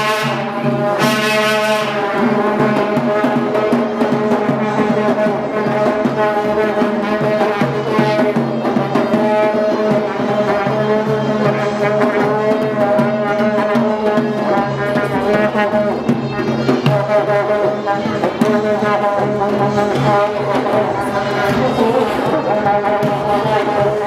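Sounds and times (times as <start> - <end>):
long brass horn blasts: 0.0 - 2.5
drum strokes: 0.0 - 24.0.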